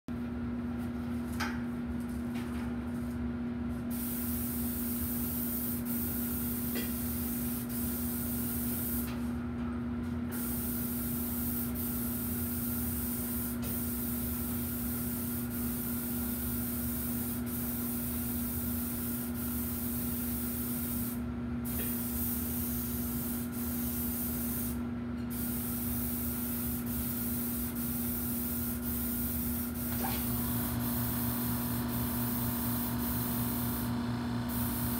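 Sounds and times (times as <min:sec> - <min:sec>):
steady hum: 0:25.6 - 0:34.9.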